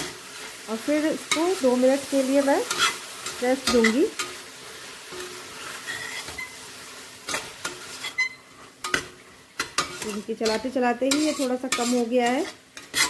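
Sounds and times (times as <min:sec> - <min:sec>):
metal spatula stirring in a pot: 0:00.0 - 0:13.0
spatula scraping and knocking pot: 0:07.3 - 0:13.0.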